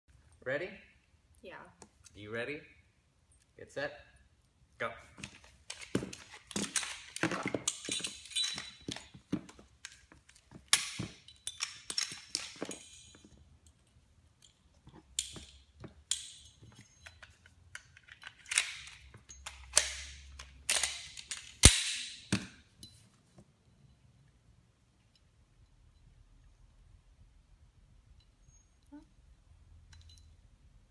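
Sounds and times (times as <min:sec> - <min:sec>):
pistol parts clicking and clacking: 0:05.2 - 0:22.9.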